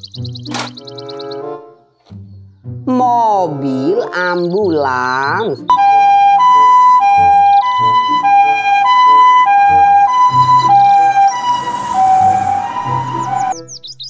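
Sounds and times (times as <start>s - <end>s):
two-tone electronic siren: 5.7s - 13.7s.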